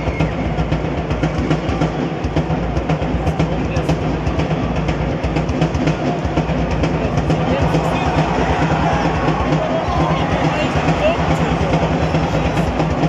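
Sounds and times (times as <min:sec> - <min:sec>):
drumbeats: 0:00.0 - 0:13.0
crowd chanting: 0:07.2 - 0:13.0.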